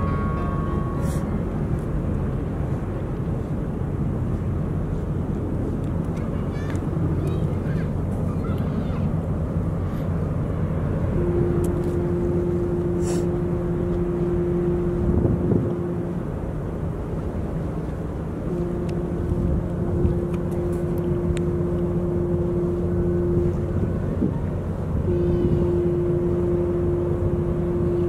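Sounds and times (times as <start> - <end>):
low rumble: 0.0 - 28.0
ship whistle blasts: 11.0 - 16.3, 18.5 - 28.0.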